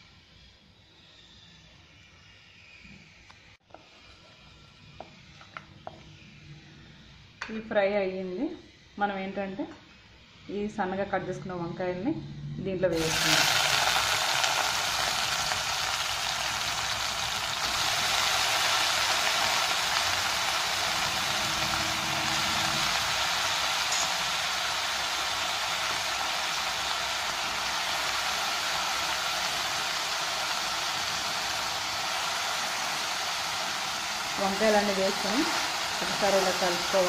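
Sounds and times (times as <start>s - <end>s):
vegetables sizzling in hot oil: 12.9s - 37.0s.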